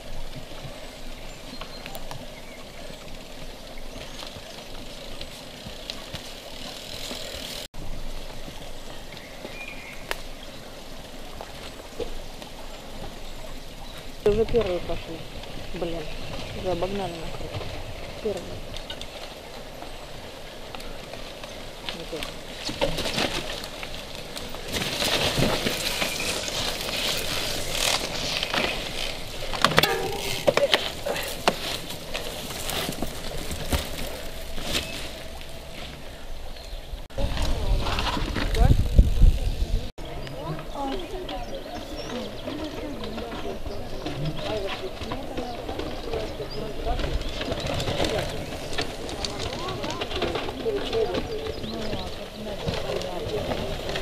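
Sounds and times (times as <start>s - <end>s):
mountain bike clicks: 0.0s - 54.0s
sharp knocks and clatters: 29.5s - 31.6s.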